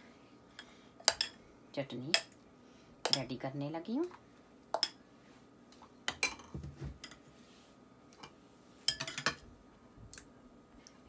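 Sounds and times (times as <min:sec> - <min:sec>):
metal spoons clinking on bowls: 0:08.9 - 0:09.4.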